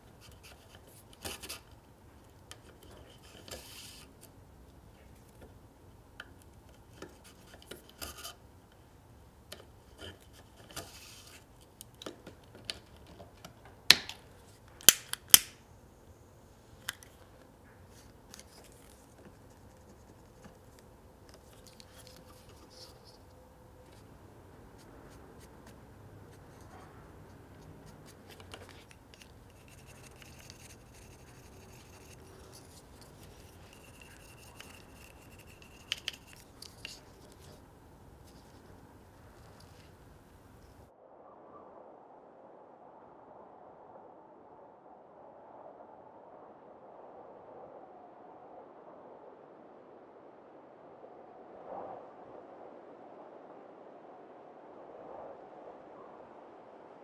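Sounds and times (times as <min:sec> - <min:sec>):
small clicks and scratches: 0:00.0 - 0:08.8, 0:09.5 - 0:15.6, 0:16.8 - 0:40.9
loud sharp clip clicks: 0:14.8 - 0:15.6.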